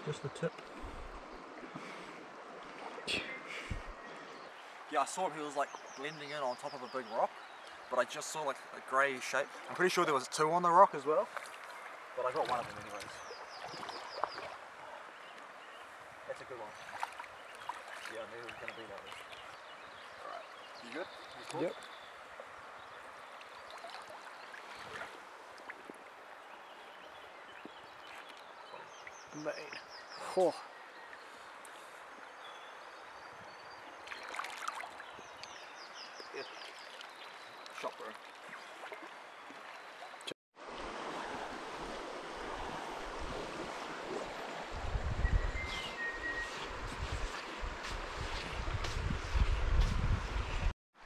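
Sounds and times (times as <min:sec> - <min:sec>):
river flowing over stones: 0:36.3 - 0:44.8
river rushing over stones: 0:40.6 - 0:44.7
wind buffeting microphone: 0:40.9 - 0:46.0, 0:46.6 - 0:50.7.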